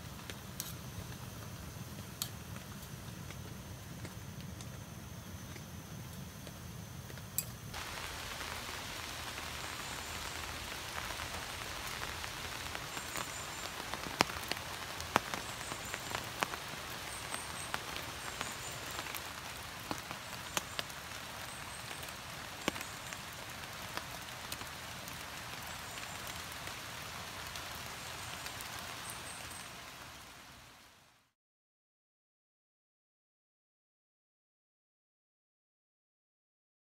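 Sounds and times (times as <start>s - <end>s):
rain falling on foliage: 0.0s - 4.8s, 7.7s - 31.3s
water drips: 7.7s - 30.3s.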